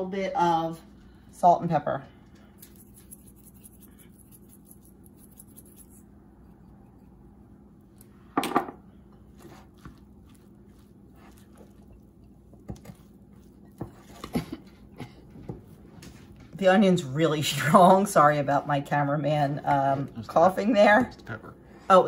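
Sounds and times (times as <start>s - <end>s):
shakers rattling: 2.6s - 6.1s
spatula scraping glass bowl: 2.6s - 7.3s.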